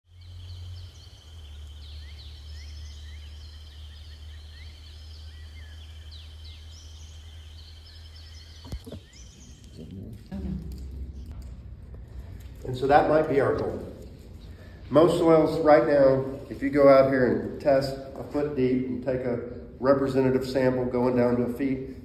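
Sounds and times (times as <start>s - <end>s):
low hum: 0.1s - 16.6s
birds chirping: 0.1s - 22.0s.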